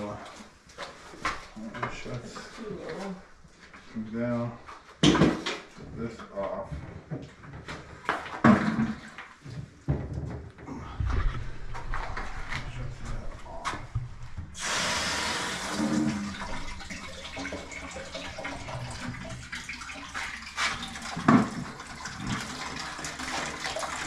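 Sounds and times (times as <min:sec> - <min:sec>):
water gushing into plastic bucket: 0:14.6 - 0:24.0
clunks from handling plumbing: 0:21.2 - 0:22.5.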